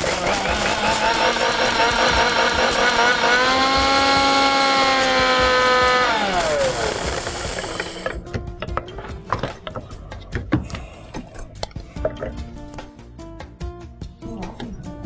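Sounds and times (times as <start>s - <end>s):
metal jar and utensils clinking: 0.0s - 3.4s, 5.6s - 10.4s
mixer grinder motor spinning down: 0.0s - 8.2s
background music: 0.0s - 15.0s.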